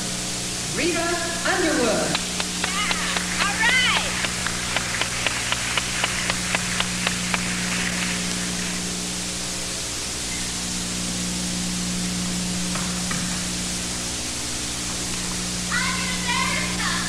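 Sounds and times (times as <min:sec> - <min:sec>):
mains hum: 0:00.0 - 0:17.0
tape hiss: 0:00.0 - 0:17.0
sharp evenly spaced clicks: 0:02.1 - 0:07.9.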